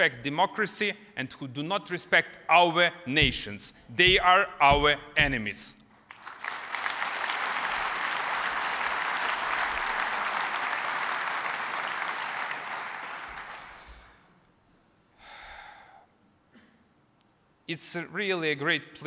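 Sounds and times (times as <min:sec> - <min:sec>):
audience applauding: 0:06.1 - 0:13.8.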